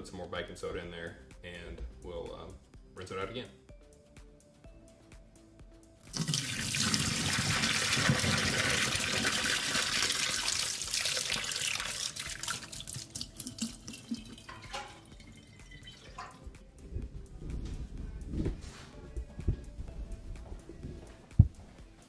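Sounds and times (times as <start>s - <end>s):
liquid pouring into sink: 6.0s - 16.4s.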